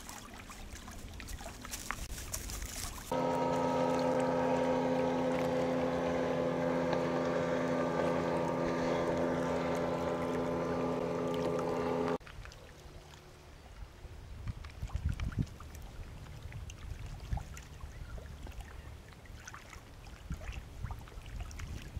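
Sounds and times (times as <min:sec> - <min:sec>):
outboard motor running: 0:03.0 - 0:12.2.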